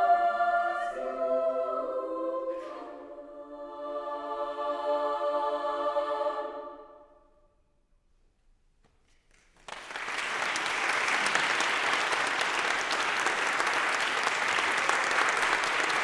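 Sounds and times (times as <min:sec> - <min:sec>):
audience applauding: 0:09.3 - 0:16.0.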